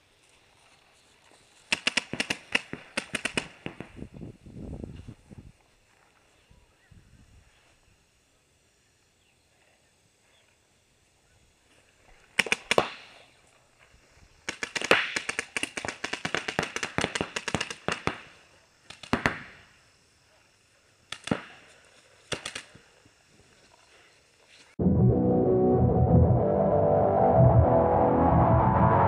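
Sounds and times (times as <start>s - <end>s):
paintball markers firing: 1.7s - 4.0s, 12.4s - 13.2s, 14.4s - 19.6s, 21.1s - 22.9s.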